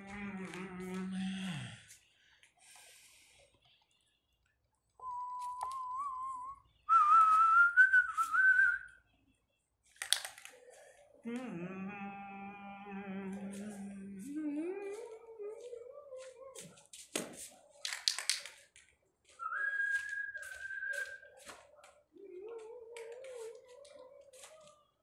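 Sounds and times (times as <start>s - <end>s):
person whistling: 5.0s - 8.9s, 19.4s - 21.3s.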